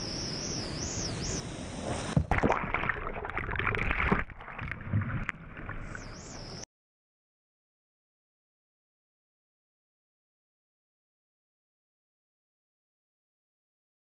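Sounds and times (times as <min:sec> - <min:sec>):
water splashing and knocking: 0:02.1 - 0:05.8.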